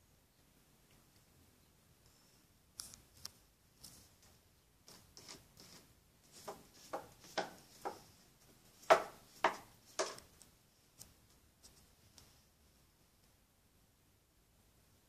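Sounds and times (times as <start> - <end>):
cat scratching litter: 3.8 - 10.4.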